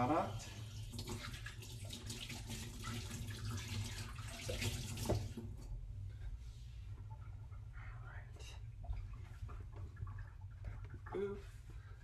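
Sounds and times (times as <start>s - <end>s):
water running from tap: 0.0s - 5.7s.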